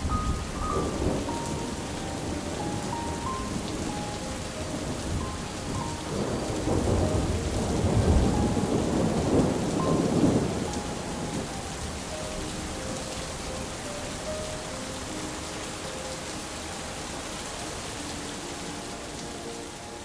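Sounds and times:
rolling thunder: 0:00.0 - 0:04.0, 0:04.8 - 0:12.6
steady rain: 0:00.0 - 0:20.0.

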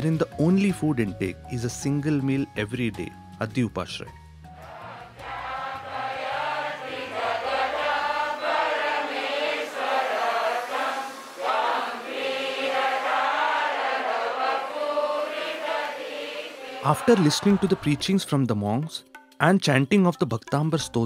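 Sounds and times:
group chanting a prayer: 0:04.6 - 0:18.2.

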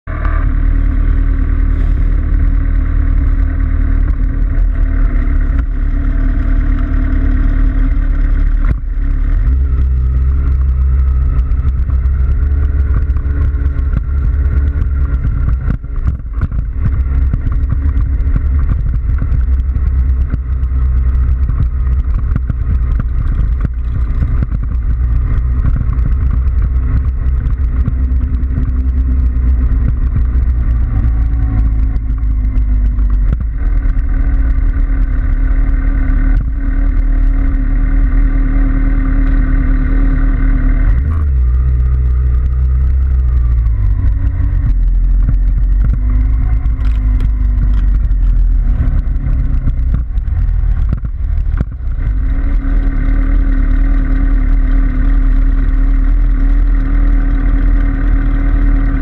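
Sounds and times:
motorcycle engines rumbling: 0:00.0 - 0:59.0.

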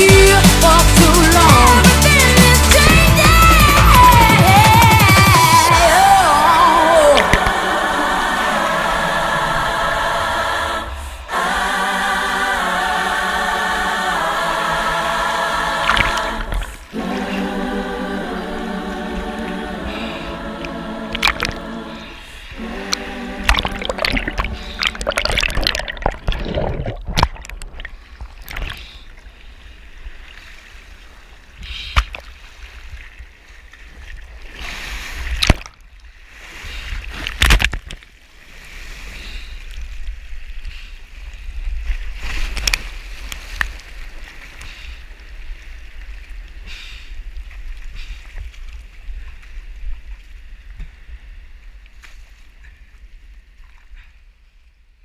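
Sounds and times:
low rumble: 0:00.9 - 0:12.8, 0:15.8 - 0:28.1
sea water sloshing and splashing: 0:05.4 - 0:10.1, 0:15.8 - 0:17.0, 0:19.1 - 0:54.4
loud sharp splashes: 0:15.8 - 0:16.8, 0:21.1 - 0:21.7, 0:22.9 - 0:28.8.

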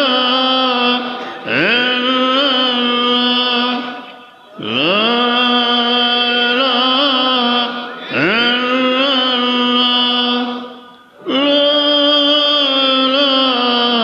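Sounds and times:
man chanting: 0:00.0 - 0:14.0.

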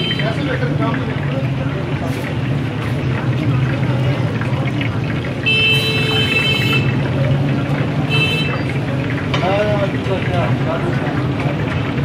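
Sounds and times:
vehicle horn tooting: 0:00.0 - 0:00.4, 0:05.4 - 0:07.0, 0:08.1 - 0:08.7
fish sizzling in oil: 0:00.0 - 0:12.0.

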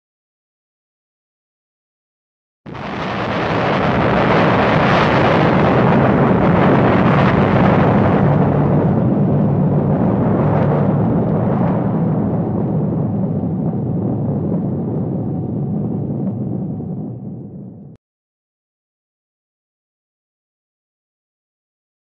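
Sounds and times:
explosion rushing rumble: 0:02.7 - 0:18.0.

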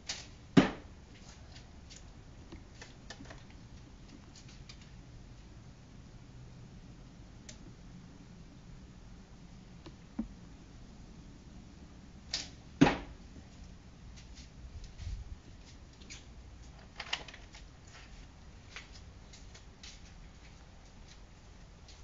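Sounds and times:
faint clicks and taps: 0:07.4 - 0:07.8, 0:09.8 - 0:10.4
bowstring snap: 0:12.3 - 0:12.6
arrow striking target thud: 0:12.3 - 0:13.2.

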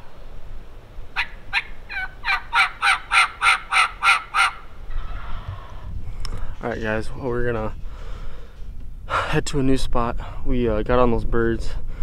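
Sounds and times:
turkey yelps: 0:01.2 - 0:05.8.

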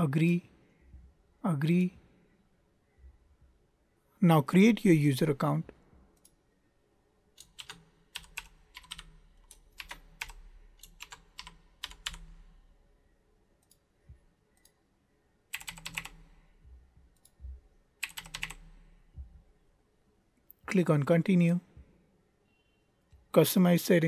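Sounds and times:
typing on computer keyboard: 0:07.4 - 0:12.4, 0:15.5 - 0:16.2, 0:18.0 - 0:18.7.

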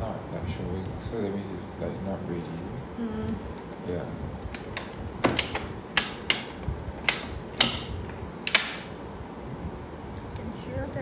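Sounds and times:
hard plastic clicks and knocks: 0:04.4 - 0:08.9.

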